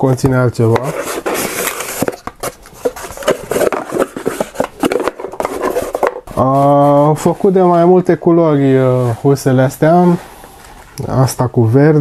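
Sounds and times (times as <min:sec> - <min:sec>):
cardboard boxes rustling and scraping: 0:00.6 - 0:10.2.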